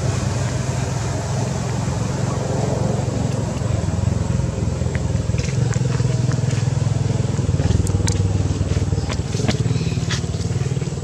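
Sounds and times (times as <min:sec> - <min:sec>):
small engine humming: 0:00.0 - 0:11.0.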